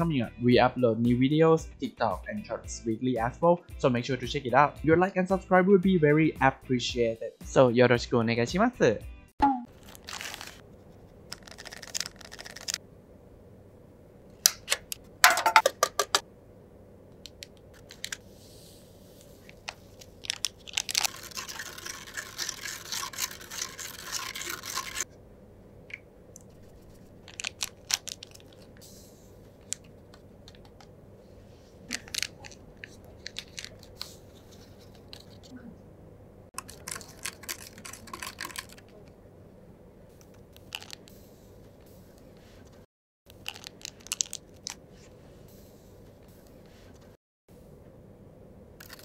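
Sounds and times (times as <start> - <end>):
plastic packaging crinkling and tearing: 9.7 - 10.6, 11.3 - 12.8, 19.5 - 25.1, 26.7 - 28.8, 31.9 - 34.2, 36.6 - 39.1, 40.5 - 41.1, 43.3 - 44.8
small plastic parts clicking: 43.3 - 44.8.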